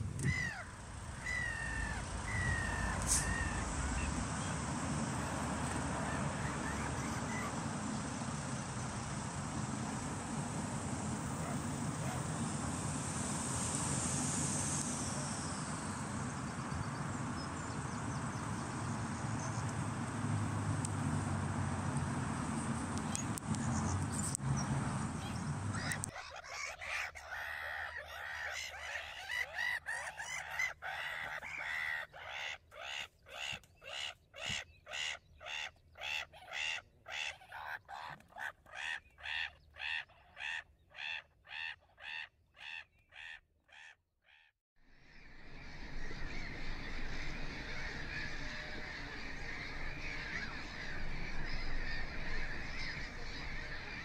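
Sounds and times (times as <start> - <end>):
gulls calling: 0.2 - 8.0, 11.2 - 12.5, 25.2 - 43.9, 45.2 - 54.0.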